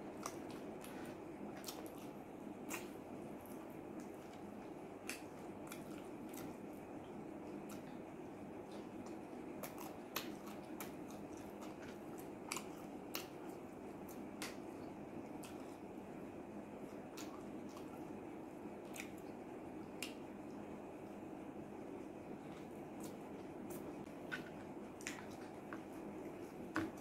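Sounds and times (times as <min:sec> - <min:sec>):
person chewing food: 0:00.0 - 0:16.0, 0:16.7 - 0:21.2, 0:22.0 - 0:27.0
low background noise: 0:00.0 - 0:27.0
lip smacks: 0:00.1 - 0:06.6, 0:08.7 - 0:14.6, 0:18.9 - 0:20.6.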